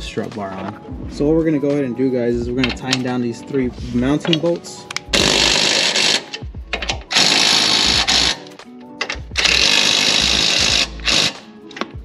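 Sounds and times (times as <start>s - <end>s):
impact wrench hammering: 5.1s - 11.9s.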